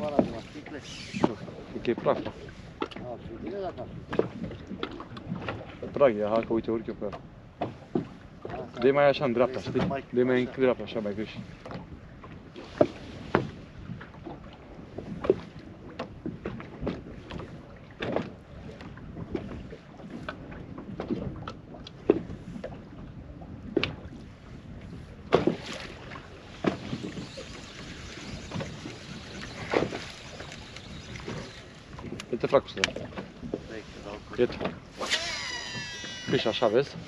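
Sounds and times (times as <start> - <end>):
rushing water: 0.0 - 6.2, 24.0 - 37.0
water slapping against hull: 0.0 - 37.0
wind on microphone: 9.5 - 37.0.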